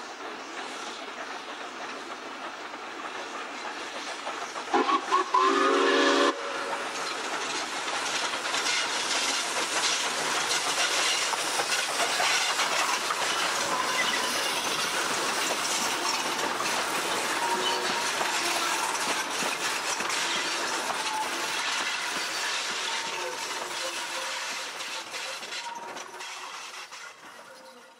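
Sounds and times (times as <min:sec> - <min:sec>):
steam exhaust chuffing: 0:00.0 - 0:27.5
train wheels clattering: 0:00.0 - 0:27.9
steam locomotive whistle: 0:04.7 - 0:06.8, 0:17.2 - 0:19.1, 0:22.7 - 0:26.5.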